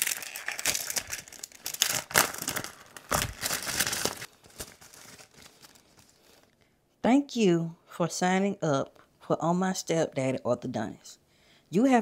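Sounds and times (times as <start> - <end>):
envelope paper tearing and crinkling: 0.0 - 6.5.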